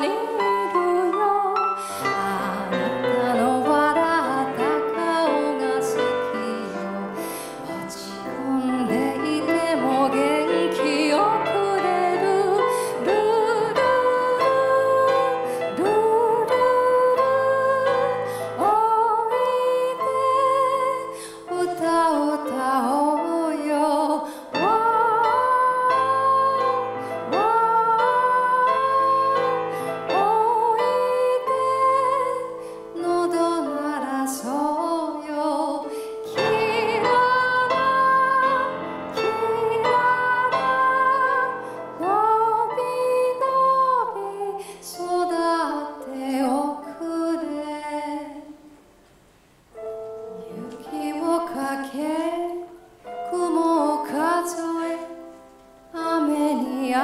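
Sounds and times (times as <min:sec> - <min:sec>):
woman singing with vibrato: 0:00.0 - 0:48.6, 0:50.3 - 0:57.0
piano accompaniment: 0:00.0 - 0:57.0.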